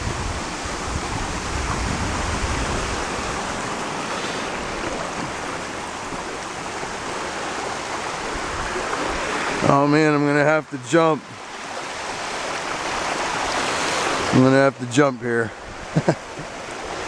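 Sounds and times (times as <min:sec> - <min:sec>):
wind rumbling on microphone: 0:00.0 - 0:09.7
waterfall and creek rushing: 0:00.0 - 0:17.0.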